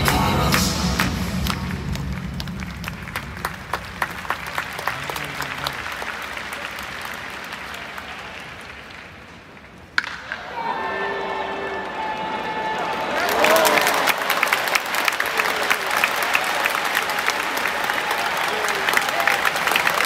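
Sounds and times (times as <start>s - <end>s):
song over loudspeakers: 0.0s - 2.4s
crowd clapping: 0.0s - 10.4s, 11.7s - 20.0s
crowd cheering: 0.0s - 20.0s
bat cracking on ball: 9.9s - 10.4s.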